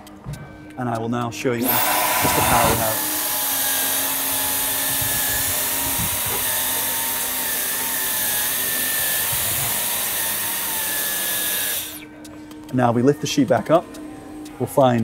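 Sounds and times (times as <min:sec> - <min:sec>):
vacuum cleaner motor whine: 0:01.6 - 0:12.1.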